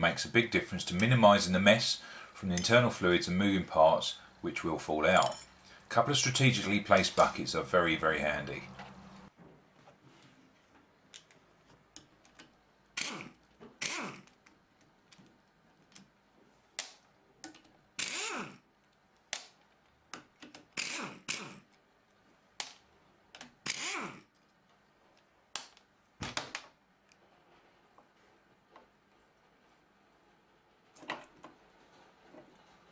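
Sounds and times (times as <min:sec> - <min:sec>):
pneumatic impact wrench bursts: 0:13.0 - 0:14.3, 0:18.0 - 0:18.6, 0:20.8 - 0:21.7, 0:23.6 - 0:24.3.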